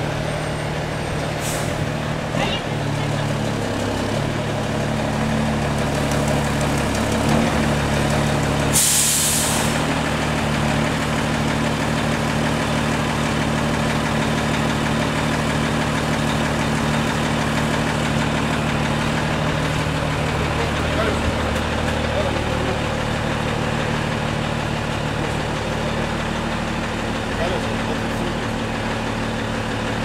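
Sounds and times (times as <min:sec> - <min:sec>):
diesel engine running: 0:00.0 - 0:30.0
air brake hiss: 0:01.4 - 0:01.8, 0:08.7 - 0:09.8.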